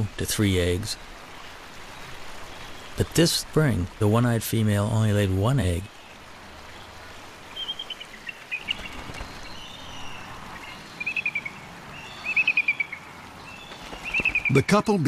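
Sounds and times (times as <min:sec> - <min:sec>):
outdoor background: 0:00.0 - 0:15.0
eagle piping calls: 0:07.5 - 0:13.0, 0:13.6 - 0:14.8.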